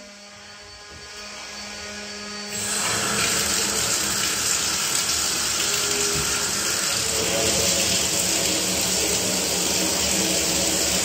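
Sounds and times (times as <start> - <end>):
water rushing from pipe: 2.5 - 11.0.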